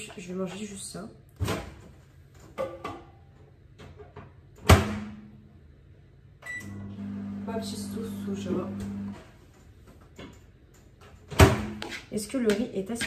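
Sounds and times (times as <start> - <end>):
microwave humming: 6.5 - 9.4.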